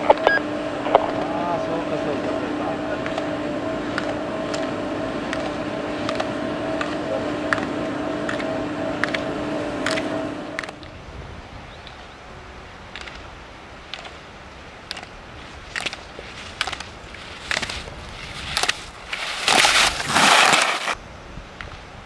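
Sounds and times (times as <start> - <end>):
skis clacking on hard snow: 14.8 - 21.0
skis scraping hiss: 15.3 - 21.0.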